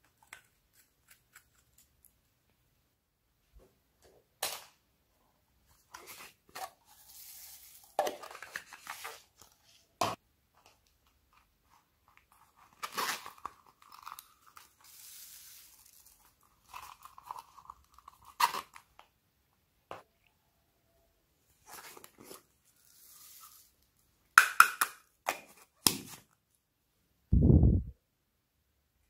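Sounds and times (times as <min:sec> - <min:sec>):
plastic crinkling and crackling: 0:10.7 - 0:19.0.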